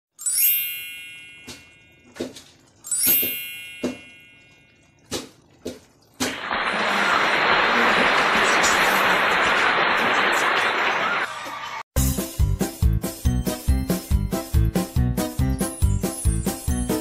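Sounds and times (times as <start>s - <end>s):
bright chimes ringing: 0.2s - 2.1s, 2.8s - 4.8s.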